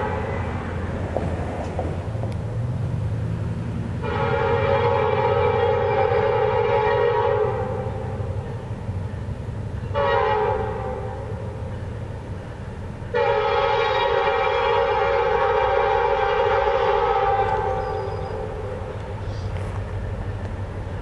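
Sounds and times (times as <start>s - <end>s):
locomotive air horn blasts: 0.0s - 0.6s, 4.0s - 8.2s, 9.9s - 11.5s, 13.1s - 19.5s
train rumble: 0.0s - 21.0s.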